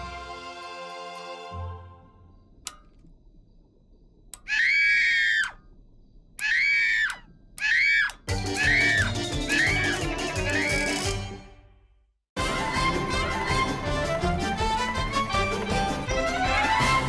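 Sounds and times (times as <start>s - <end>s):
drawn-out vocal cries: 4.4s - 5.7s, 6.4s - 11.1s
cartoon theme music: 8.3s - 11.6s, 12.4s - 17.0s.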